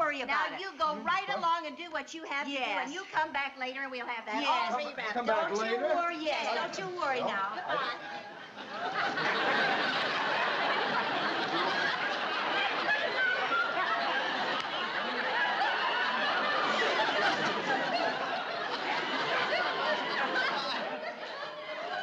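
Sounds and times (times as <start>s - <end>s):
audience laughter: 7.1s - 22.0s.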